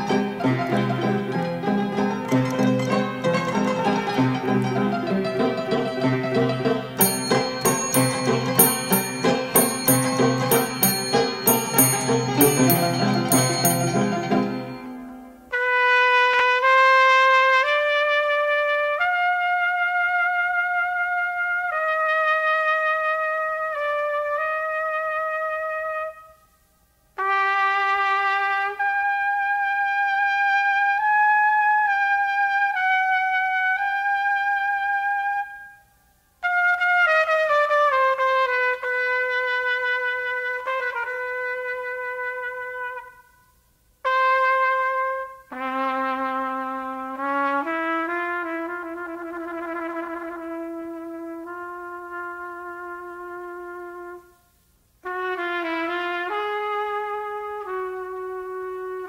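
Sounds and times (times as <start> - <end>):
film soundtrack melody: 2.4 - 15.2.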